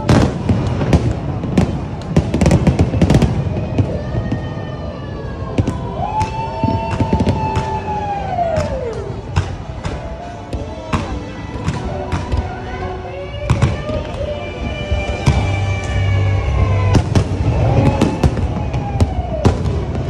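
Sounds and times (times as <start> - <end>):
fireworks whistling: 0.0 - 4.9, 13.7 - 20.0
fireworks bangs and crackles: 0.0 - 20.0.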